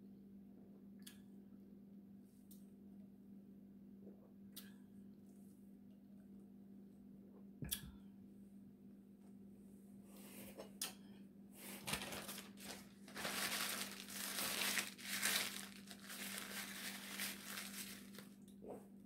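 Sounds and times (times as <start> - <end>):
paper napkin crumpling: 11.7 - 18.4.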